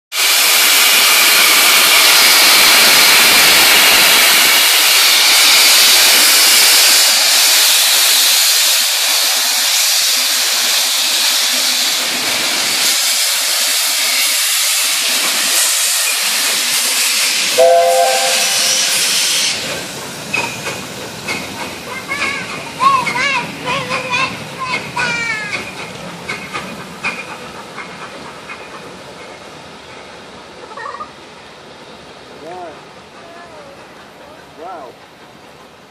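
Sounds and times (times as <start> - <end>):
steam locomotive hissing steam: 0.1 - 35.9
brief high-pitched note: 17.6 - 19.2.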